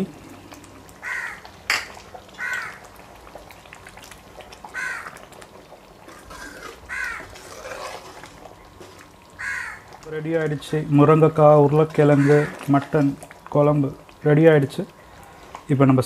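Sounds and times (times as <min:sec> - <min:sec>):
bird calling: 0:09.4 - 0:09.9.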